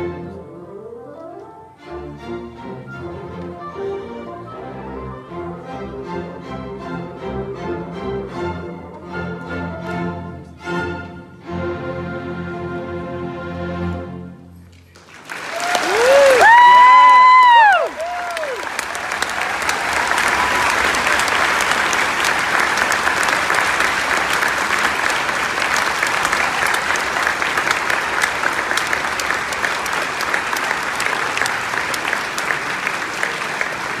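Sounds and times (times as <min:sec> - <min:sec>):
large audience applauding: 0:14.9 - 0:34.0.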